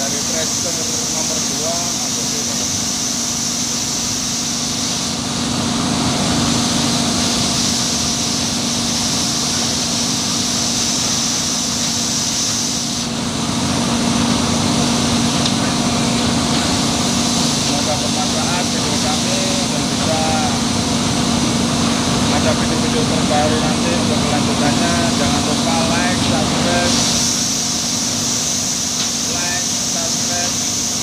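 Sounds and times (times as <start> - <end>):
industrial machinery drone: 0.0 - 31.0
machinery hiss: 0.0 - 31.0.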